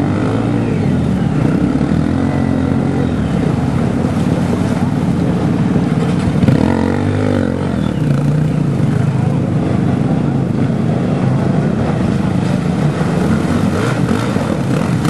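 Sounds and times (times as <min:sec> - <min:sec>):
dirt bike engine revving: 0:00.0 - 0:04.5, 0:06.1 - 0:08.7, 0:12.8 - 0:15.0
water spray churning: 0:00.0 - 0:15.0.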